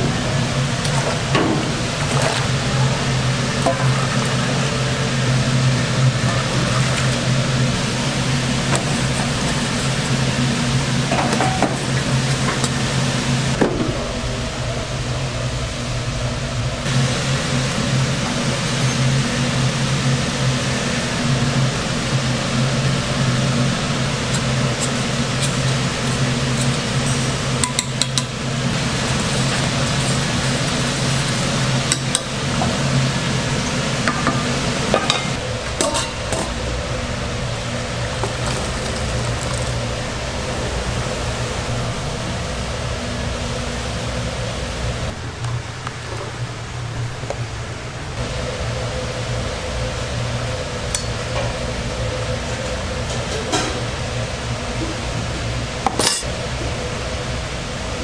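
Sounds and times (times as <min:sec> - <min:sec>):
low machine hum: 0:00.0 - 0:58.0
dishes and utensils clinking: 0:55.9 - 0:56.4.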